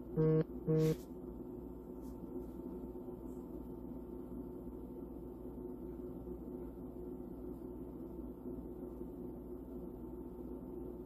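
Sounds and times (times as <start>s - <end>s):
low room tone hum: 0.0s - 11.0s.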